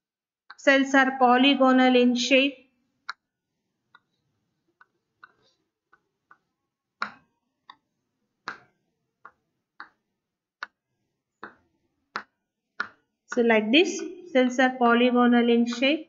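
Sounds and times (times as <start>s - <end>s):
chalk tapping on chalkboard: 3.9s - 7.8s, 11.4s - 13.0s.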